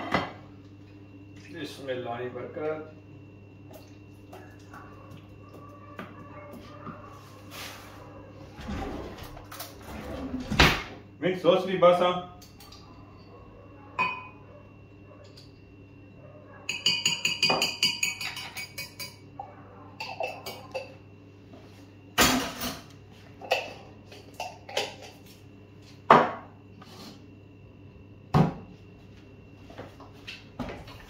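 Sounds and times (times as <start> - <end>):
spoon and jars clattering: 16.6 - 19.3, 20.0 - 21.0, 22.2 - 25.2.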